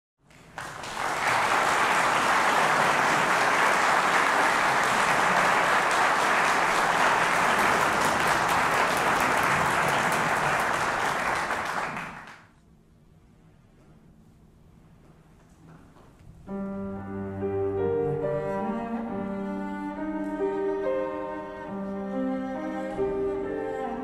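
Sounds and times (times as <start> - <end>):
audience applauding: 0.3 - 12.5.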